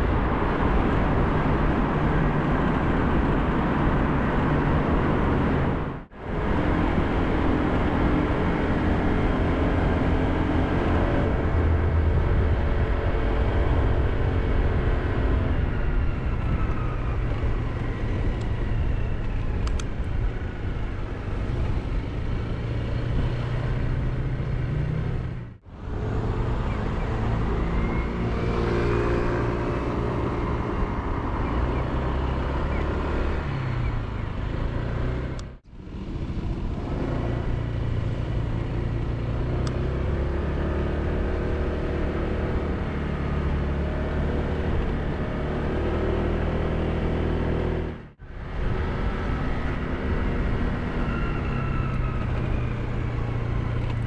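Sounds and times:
wind and road noise: 0.0 - 54.0.

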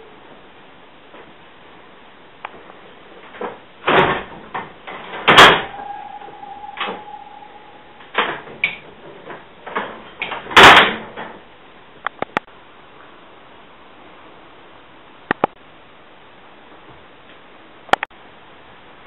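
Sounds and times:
ringing metal note: 5.4 - 9.2.

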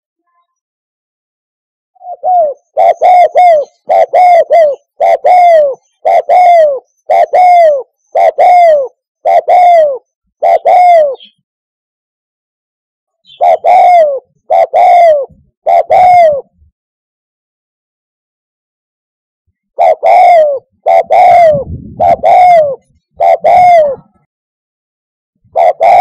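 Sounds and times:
dove cooing: 2.0 - 11.4, 13.2 - 16.6, 19.7 - 24.3, 25.5 - 26.0.

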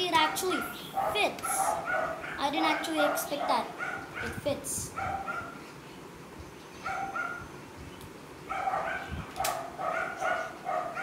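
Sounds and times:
small dog yapping: 8.5 - 11.0
sharp click: 9.4 - 9.6.

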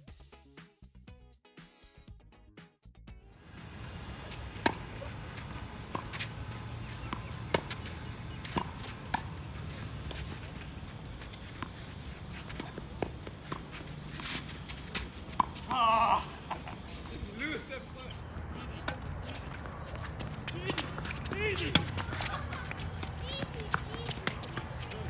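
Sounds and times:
music: 0.0 - 15.1
outdoor background noise: 3.2 - 25.0
rackets hitting tennis ball: 3.6 - 17.8, 18.5 - 25.0
ball bouncing on court: 4.6 - 9.5, 18.6 - 25.0.

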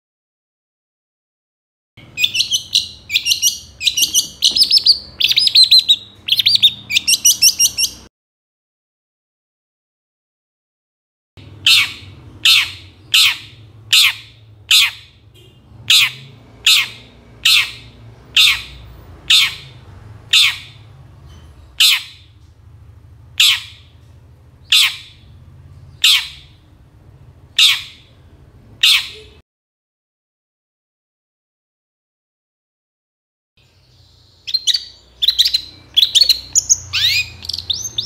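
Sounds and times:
shrike squawking calls: 2.0 - 8.0, 15.9 - 20.9, 34.5 - 38.0.

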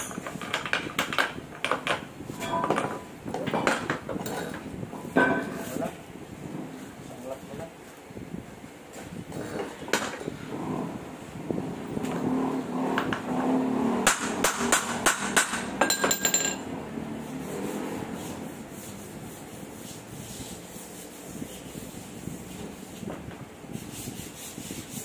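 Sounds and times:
metallic ring: 2.4 - 3.1, 15.8 - 16.8
metal clinks and taps: 15.4 - 16.7
soft rubbing: 17.2 - 25.0.

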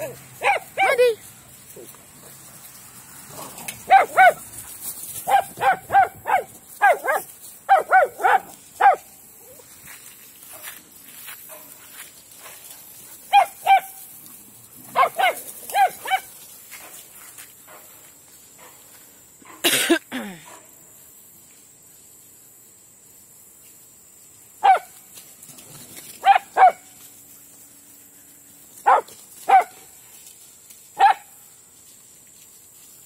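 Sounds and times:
dog barking: 0.0 - 1.0, 3.9 - 4.4, 5.2 - 9.0, 13.3 - 14.0, 14.9 - 16.3, 24.6 - 24.9, 26.2 - 26.8, 28.8 - 29.8, 31.0 - 31.3.

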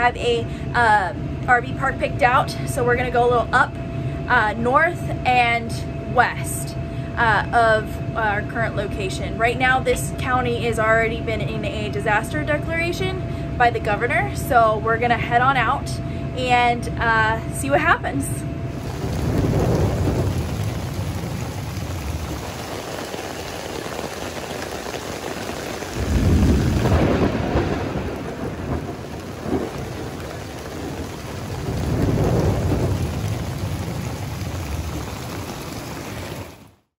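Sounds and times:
thunder rumbles: 18.7 - 36.8
heavy rain: 18.7 - 36.9.

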